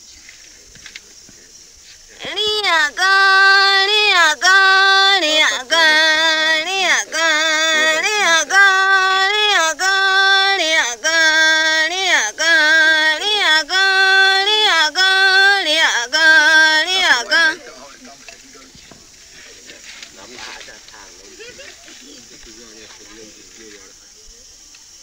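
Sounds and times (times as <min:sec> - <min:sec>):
woman singing alone: 0:02.2 - 0:17.7.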